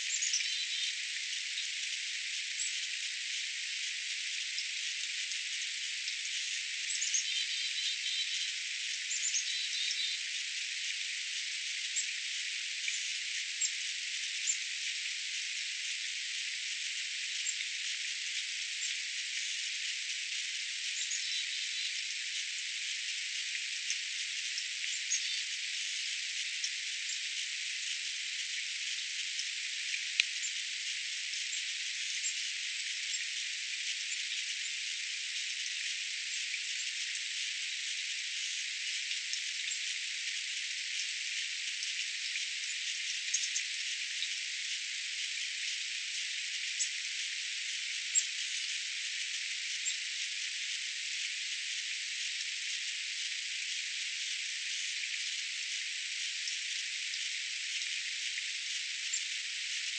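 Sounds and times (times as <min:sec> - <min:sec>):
songbirds chirping: 0:00.0 - 0:01.8, 0:06.1 - 0:10.3, 0:20.9 - 0:22.1
steady high hiss: 0:00.0 - 0:59.9.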